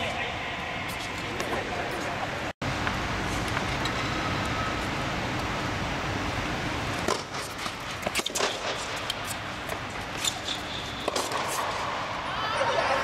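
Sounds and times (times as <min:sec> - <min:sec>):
tennis ball hits and bounces: 0:07.0 - 0:11.9.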